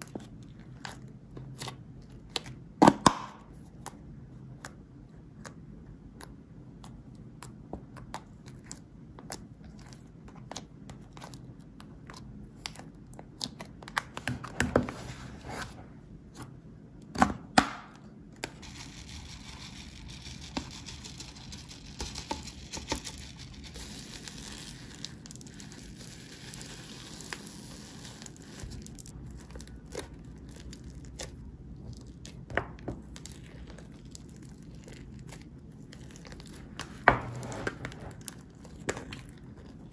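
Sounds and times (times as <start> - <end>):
slime squishing with sticky pops: 0.0 - 14.5, 21.9 - 37.1
foam beads crackling in slime: 18.6 - 37.0.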